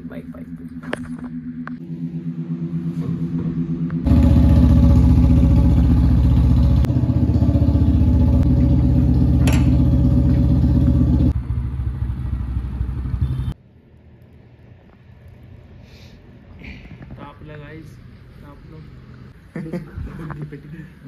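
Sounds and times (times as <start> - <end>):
motorcycle engine running: 0.0 - 13.6
sharp metallic clink: 9.4 - 9.8.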